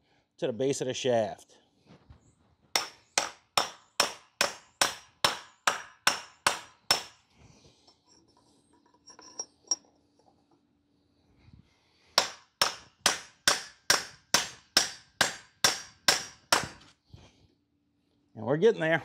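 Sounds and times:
hammer striking metal pipe: 2.8s - 7.2s, 12.2s - 16.8s.

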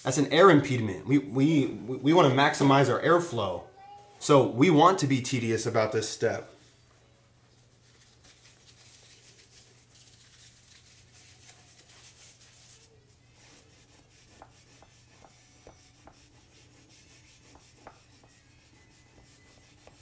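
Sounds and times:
paper towel rustling: 6.1s - 13.9s.

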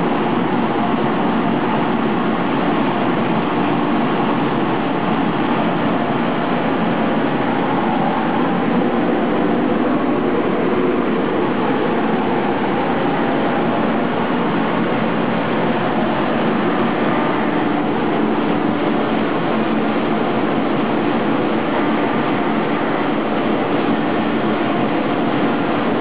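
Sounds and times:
machine motors and chain conveyor: 0.0s - 26.0s.

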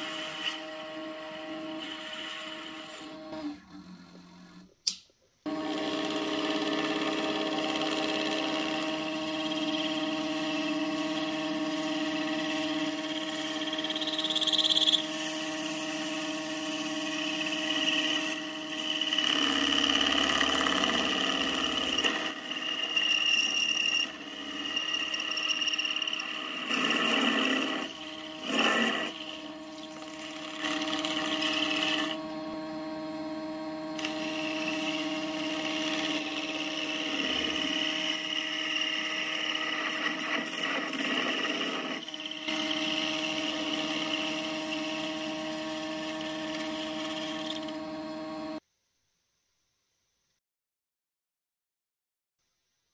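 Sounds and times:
lathe motor whine: 0.0s - 4.4s, 5.5s - 48.6s
tool cutting steel: 5.6s - 32.2s, 33.9s - 47.9s.

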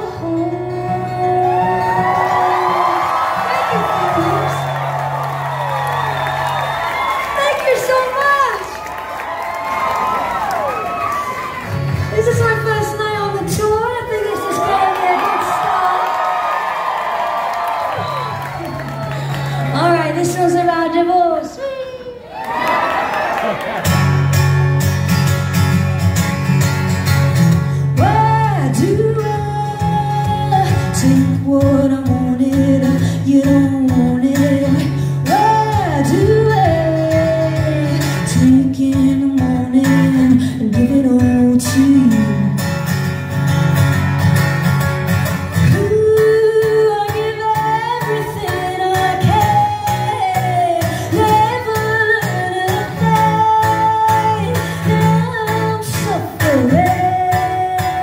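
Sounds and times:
woman singing: 0.0s - 4.8s, 28.0s - 42.7s, 45.6s - 58.0s
acoustic guitar strummed and picked: 0.0s - 6.9s, 11.4s - 14.2s, 23.8s - 58.0s.

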